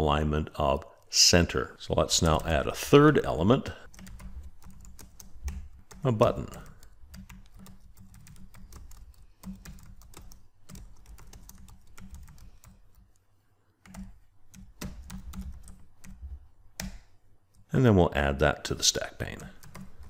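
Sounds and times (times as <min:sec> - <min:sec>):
typing on computer keyboard: 0:03.8 - 0:13.2, 0:13.8 - 0:17.1, 0:19.4 - 0:20.0.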